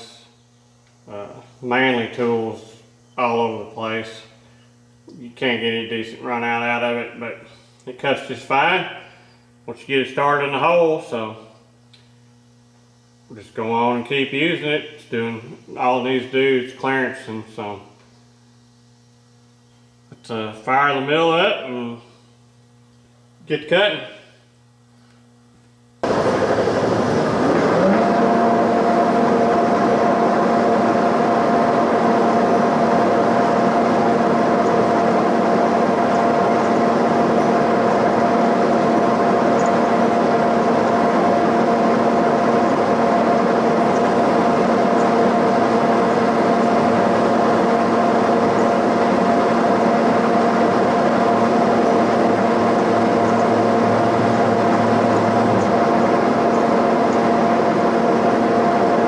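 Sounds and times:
milling machine spindle whine: 0.0 - 9.7, 26.0 - 59.0
cutter machining metal: 26.2 - 31.0, 44.9 - 58.0.

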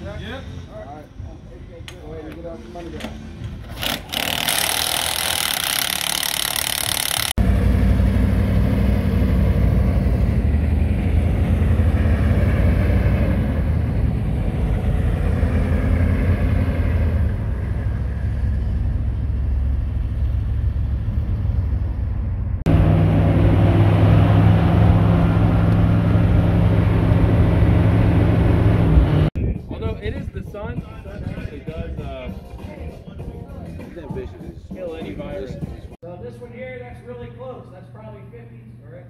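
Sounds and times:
diesel engine running: 3.5 - 29.3
road noise inside vehicle cab: 7.3 - 29.4.

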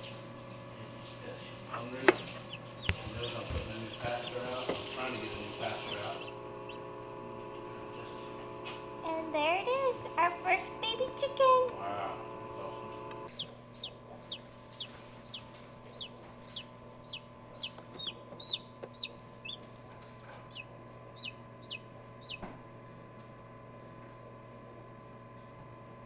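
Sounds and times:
incubator hum: 0.0 - 26.0
chick peeping: 2.0 - 6.9, 13.3 - 19.7, 20.4 - 22.4.

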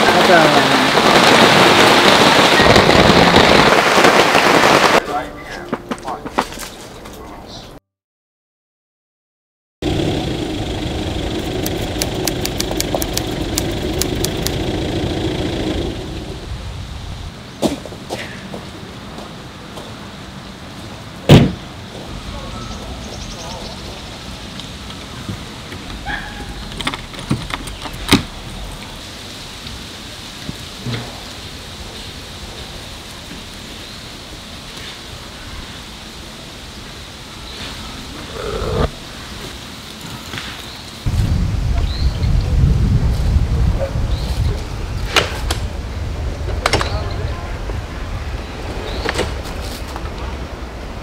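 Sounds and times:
rain hissing: 0.0 - 5.3, 9.8 - 17.6, 23.6 - 46.5
engine idling: 9.8 - 16.5
sharp high ticks: 11.3 - 14.7.

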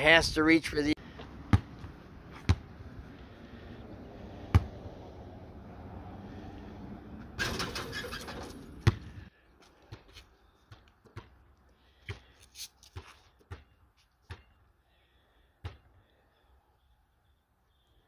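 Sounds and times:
basketball bouncing on asphalt: 1.1 - 3.0, 4.3 - 5.0, 8.6 - 14.7, 15.6 - 16.0.

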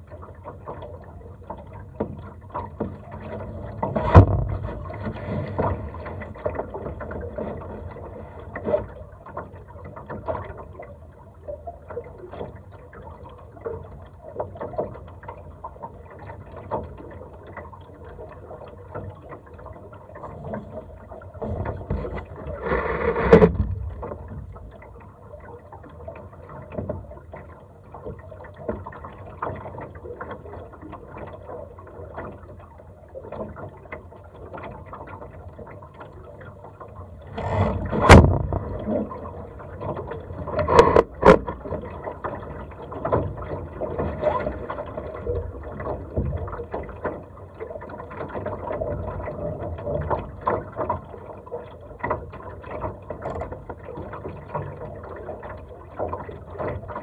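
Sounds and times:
water sloshing along hull: 0.0 - 57.0
boat fittings knocking and rattling: 1.5 - 10.7, 20.2 - 25.0, 37.4 - 51.4.

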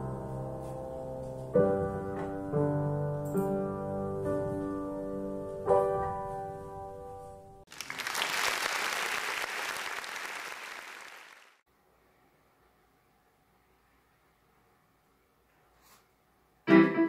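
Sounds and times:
upright piano chords: 0.0 - 7.6
audience applause: 7.7 - 11.6.

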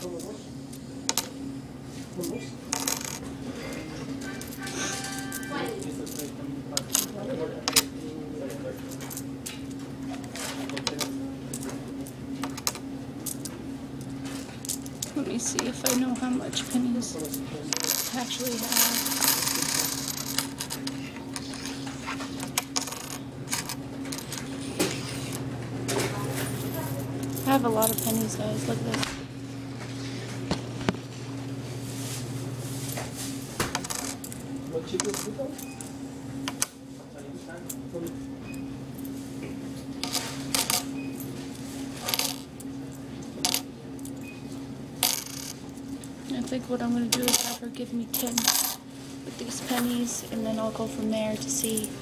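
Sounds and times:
steady low hum: 0.0 - 52.0
coins clinking: 2.2 - 7.9, 10.4 - 25.4, 26.0 - 29.0, 33.7 - 36.7, 40.0 - 41.3, 42.0 - 42.5, 43.4 - 44.3, 45.0 - 46.0, 47.0 - 48.8, 49.4 - 52.0
coins clinking in hands: 4.2 - 6.3, 14.6 - 21.8, 26.6 - 28.5, 42.0 - 42.5, 45.0 - 45.6, 47.1 - 48.8.

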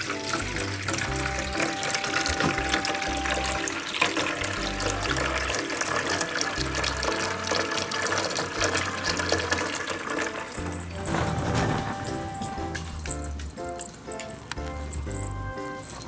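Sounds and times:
background music with bass line: 0.0 - 3.8, 4.4 - 5.8, 6.5 - 7.7, 10.5 - 15.8
water running from a tap: 0.0 - 13.4.

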